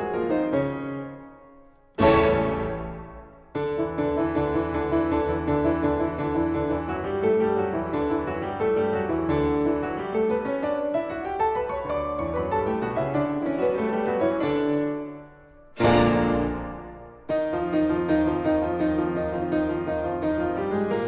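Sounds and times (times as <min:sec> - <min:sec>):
piano music: 0:00.0 - 0:21.0.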